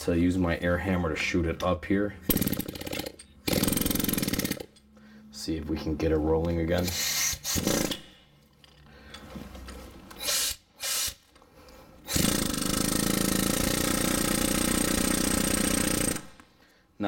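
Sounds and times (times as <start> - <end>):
pneumatic air hammer hammering: 2.3 - 4.8, 6.8 - 8.2, 12.1 - 16.4.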